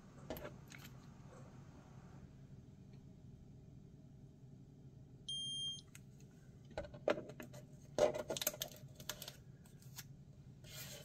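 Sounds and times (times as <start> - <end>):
blood ketone meter beeping: 5.3 - 5.9.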